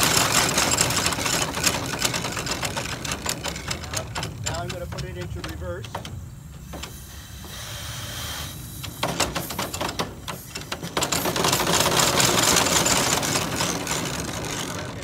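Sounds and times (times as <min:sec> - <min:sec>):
steam engine chain drive clattering: 0:00.0 - 0:15.0
loud steam hiss: 0:03.5 - 0:14.7.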